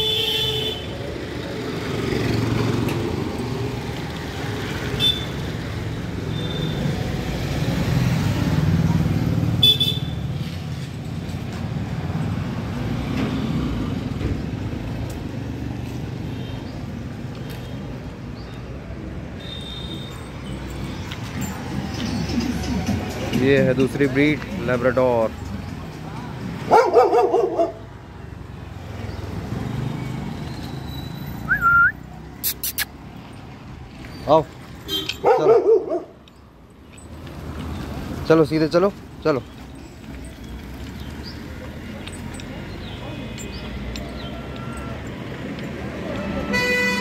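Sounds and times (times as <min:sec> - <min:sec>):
vehicle engine rumbling: 0:01.2 - 0:27.5, 0:28.3 - 0:47.0
dog yelping: 0:26.7 - 0:27.8, 0:35.2 - 0:36.2.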